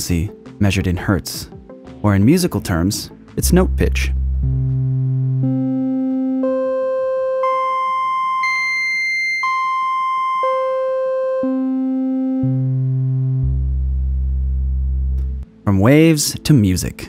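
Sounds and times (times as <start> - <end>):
electronic tone stepping in pitch: 3.9 - 15.4.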